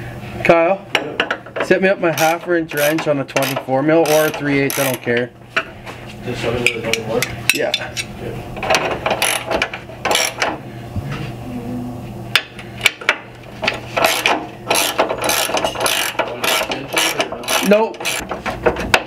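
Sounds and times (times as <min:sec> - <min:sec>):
hand ratchet clicking: 0:02.2 - 0:05.1, 0:09.2 - 0:10.4, 0:14.0 - 0:18.3.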